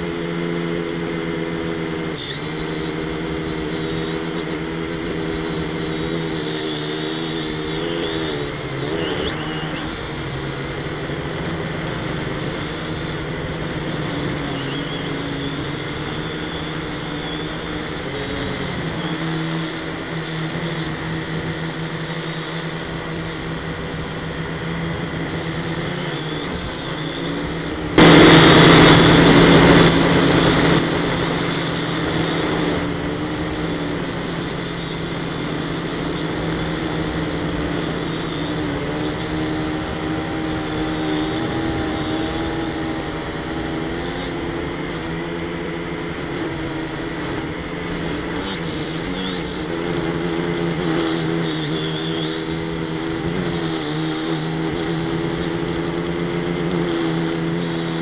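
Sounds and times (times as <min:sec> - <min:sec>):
quadcopter motors whining: 0:00.0 - 0:58.0
loud rushing noise: 0:25.2 - 0:38.5.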